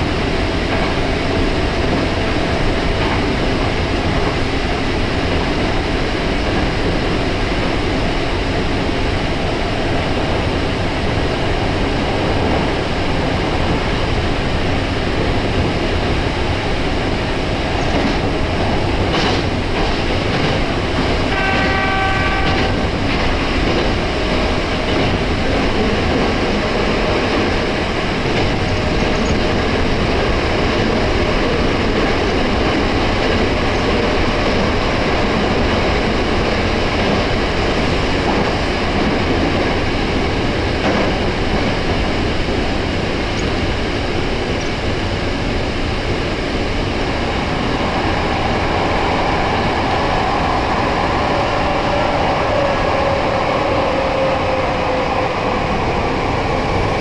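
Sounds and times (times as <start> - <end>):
train wheels rumbling on rail: 0.0 - 57.0
train horn tone: 21.3 - 22.8.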